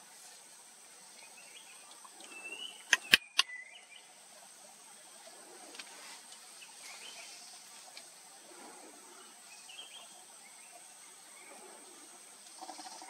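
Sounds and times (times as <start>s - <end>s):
distant bird chirps: 1.1s - 4.2s, 9.1s - 13.0s.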